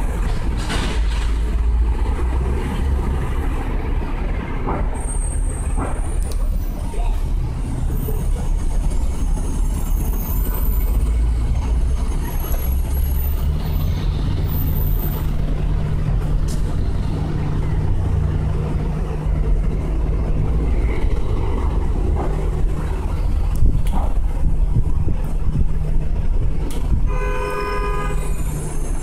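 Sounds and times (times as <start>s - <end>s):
idling vehicle engines rumble: 0.0s - 29.0s
steady engine hum: 0.0s - 29.0s.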